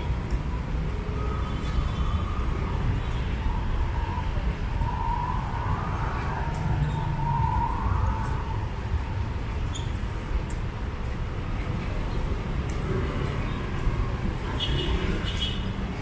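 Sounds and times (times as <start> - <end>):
emergency vehicle siren: 0.0 - 9.6
street traffic rumble: 0.0 - 16.0.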